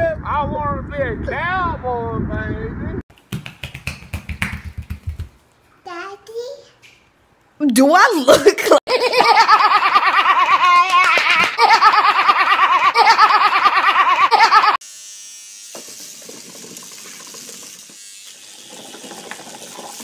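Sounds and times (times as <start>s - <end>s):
girl laughing: 8.3s - 14.8s
electric toothbrush buzzing: 14.4s - 20.0s.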